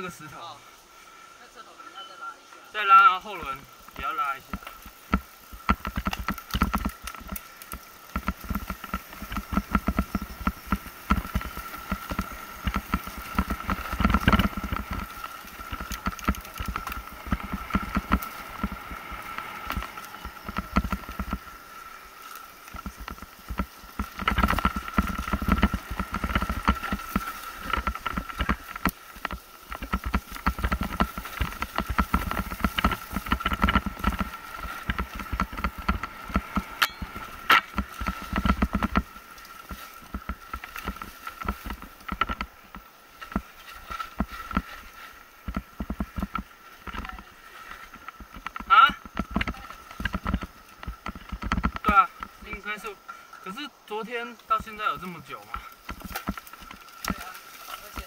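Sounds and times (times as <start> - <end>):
mountain bike rattling and knocking: 2.8 - 58.0
steady high whine: 8.2 - 29.0, 29.7 - 40.6.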